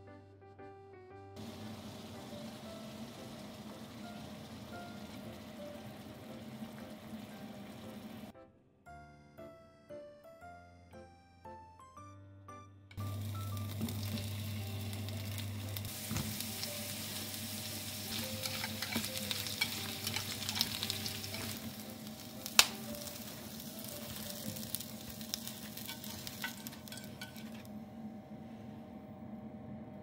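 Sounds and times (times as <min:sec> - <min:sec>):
potatoes sizzling in oil: 0:01.4 - 0:08.3, 0:13.0 - 0:27.7.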